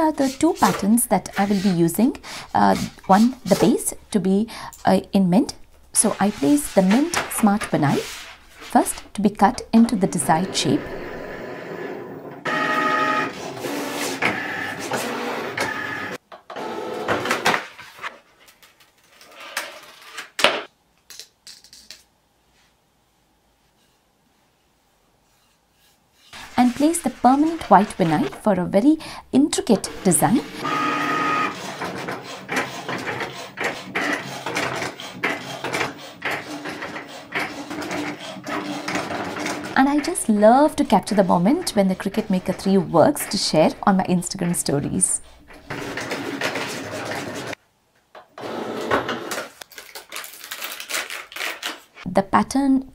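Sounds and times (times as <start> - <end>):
cutting machine carriage moving: 6.0 - 8.0, 8.6 - 17.6, 26.4 - 47.6
cutting machine motors whining: 12.4 - 17.2, 29.6 - 34.4
vinyl crackling as peeled: 49.6 - 52.0.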